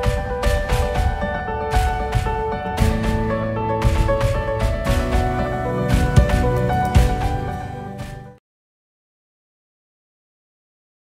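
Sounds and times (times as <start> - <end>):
steady drum beat: 0.0 - 7.7.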